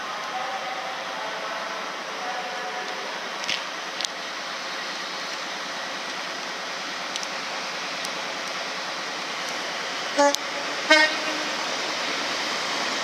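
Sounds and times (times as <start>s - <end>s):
train rushing noise: 0.0s - 13.0s
train horn: 10.2s - 11.6s.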